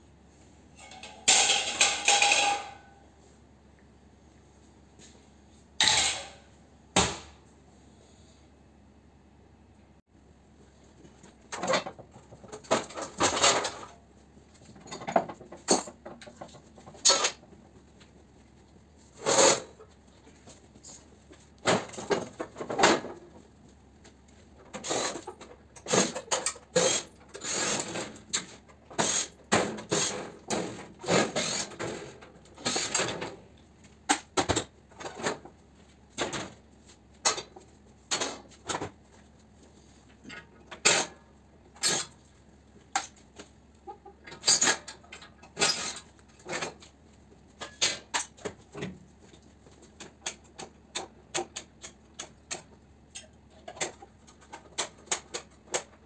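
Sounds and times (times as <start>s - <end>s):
sheet-metal panels clinking: 0.8s - 3.0s.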